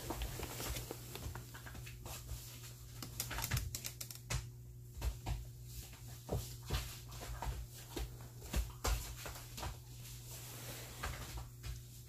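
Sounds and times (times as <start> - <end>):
plastic tarp crinkling: 0.0 - 1.6.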